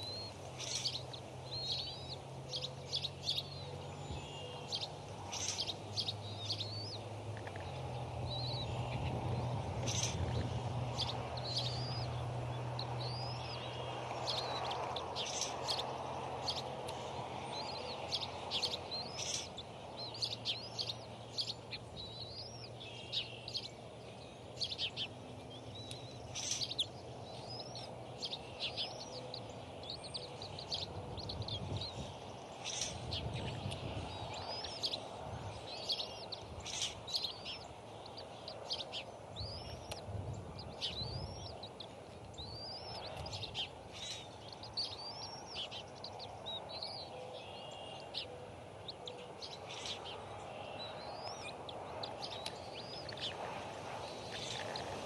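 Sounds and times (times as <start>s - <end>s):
bird chirps and calls: 0.0s - 55.0s.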